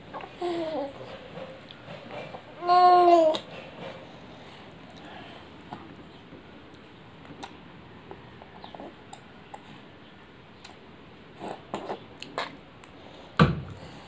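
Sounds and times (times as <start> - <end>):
baby sucking and swallowing: 10.6 - 12.6.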